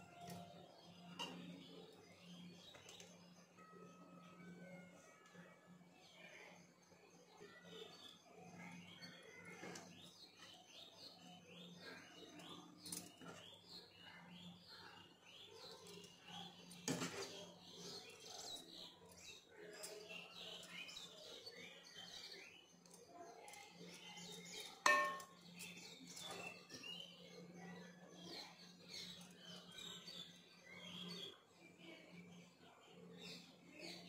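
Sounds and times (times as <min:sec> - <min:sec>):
small birds chirping: 0:00.0 - 0:34.0
metal ladle clinking on pot: 0:24.8 - 0:25.4.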